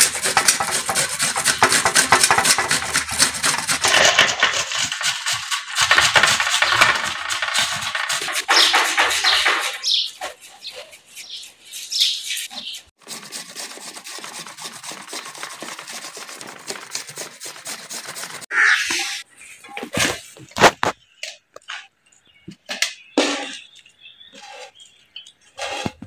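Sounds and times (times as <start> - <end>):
onion rasping on a hand grater: 0.0 - 18.5
birds chirping: 6.1 - 13.0, 18.5 - 26.0.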